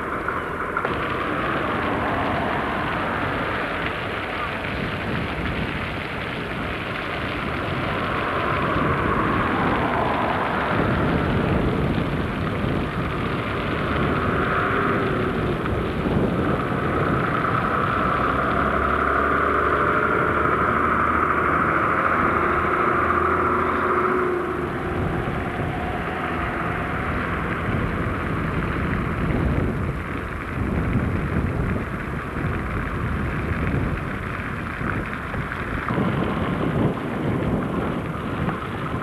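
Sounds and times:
coach diesel engine passing: 0.0s - 4.7s, 7.8s - 29.4s.

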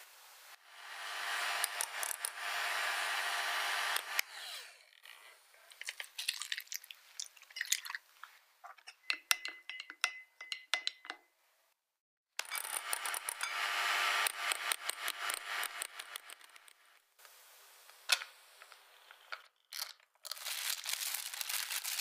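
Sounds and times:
steady hiss: 0.0s - 0.6s.

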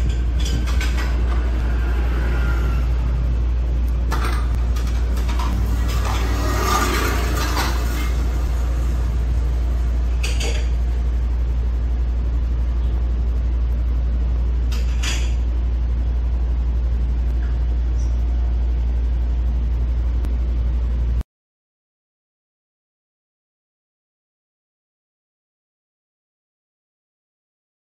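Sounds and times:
loud low hum: 0.0s - 21.2s.

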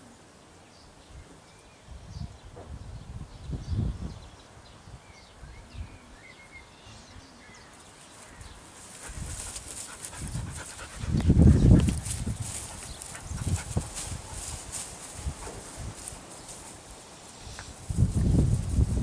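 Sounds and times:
dogs panting and scuffling: 8.0s - 17.2s.

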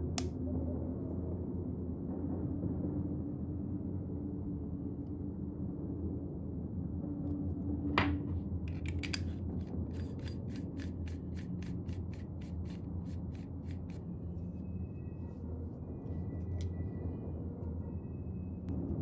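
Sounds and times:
steady low hum: 0.0s - 19.0s
metal parts clicking: 8.7s - 14.0s.

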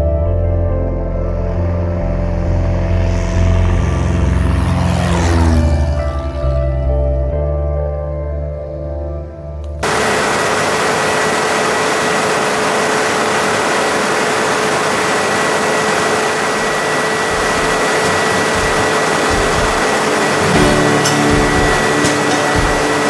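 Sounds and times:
light aircraft engine and propeller: 0.9s - 7.1s, 9.8s - 23.0s
steady whine: 9.8s - 23.0s
wind and airframe noise: 9.8s - 23.0s.

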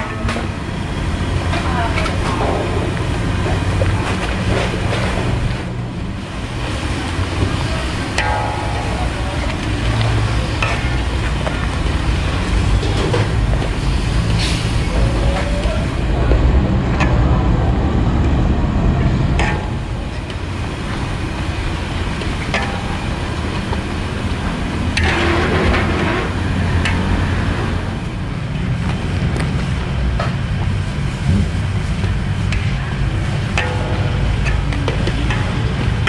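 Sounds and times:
steady low rumble: 0.0s - 36.0s.

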